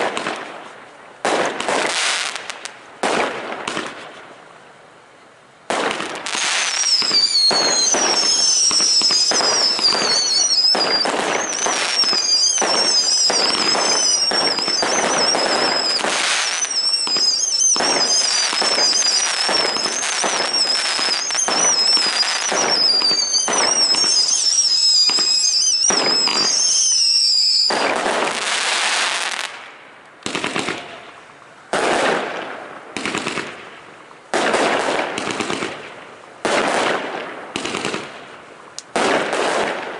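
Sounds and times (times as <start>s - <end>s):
fireworks bangs: 0.0s - 4.3s, 5.7s - 39.9s
fireworks bursts and crackle: 0.0s - 4.5s, 5.6s - 39.9s
fireworks whistles: 5.7s - 29.7s.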